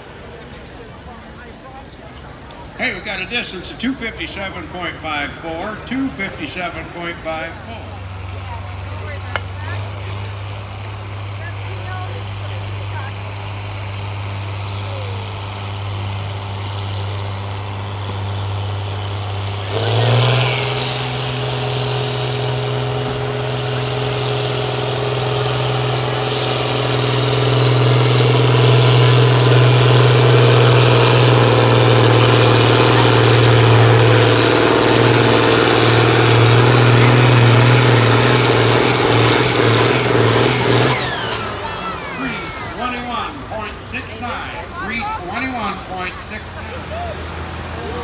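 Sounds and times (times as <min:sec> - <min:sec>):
tractor diesel engine revving: 0:02.3 - 0:48.0.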